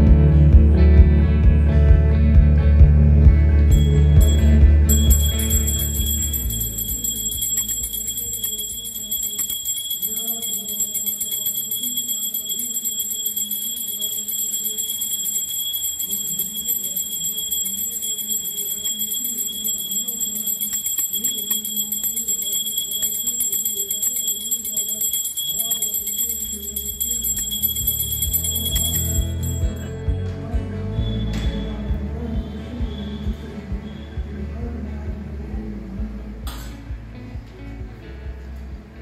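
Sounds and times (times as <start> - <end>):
bell ringing continuously: 3.6 - 31.7.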